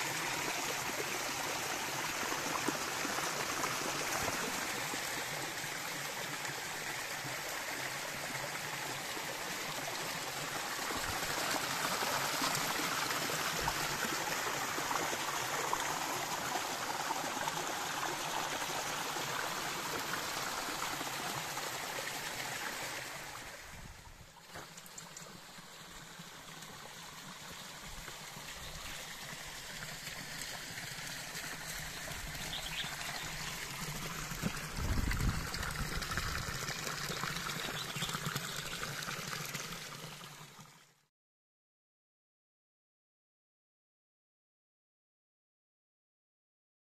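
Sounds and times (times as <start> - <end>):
water trickling over rocks: 0.0 - 41.0
water pouring from stone spout: 28.0 - 41.0.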